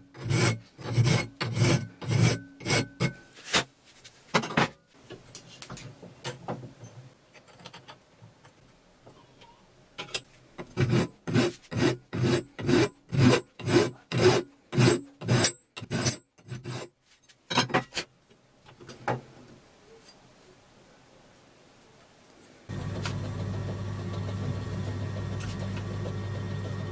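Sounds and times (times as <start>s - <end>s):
hand file rasping on metal: 0.1s - 3.2s, 10.6s - 16.9s.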